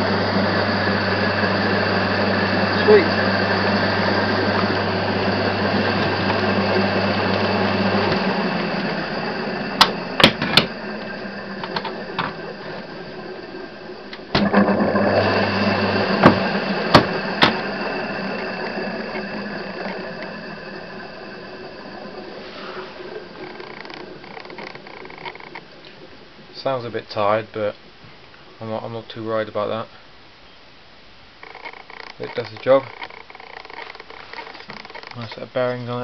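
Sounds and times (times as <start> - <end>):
electric motor whirring: 0.0 - 25.6
electrical hum: 0.0 - 36.0.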